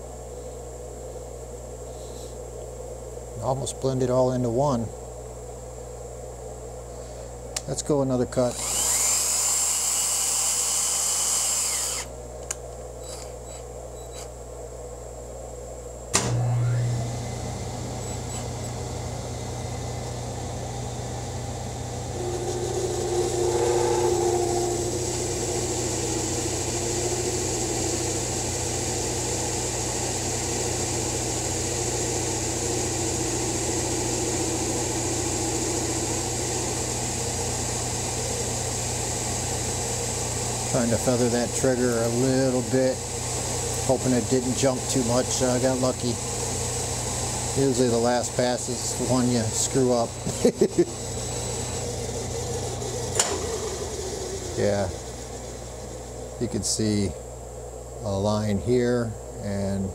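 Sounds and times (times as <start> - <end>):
cutting whine: 7.5 - 14.4, 16.1 - 58.2
high-pitched whirring: 8.5 - 12.1, 21.8 - 28.2
lathe spindle humming: 8.5 - 12.2, 16.2 - 58.5.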